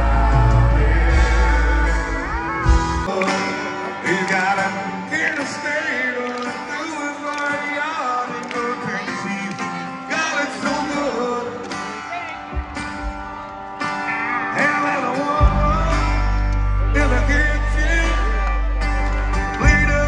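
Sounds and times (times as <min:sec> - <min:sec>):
man singing: 0:00.0 - 0:12.0, 0:14.4 - 0:20.0
strummed acoustic guitars: 0:00.0 - 0:20.0.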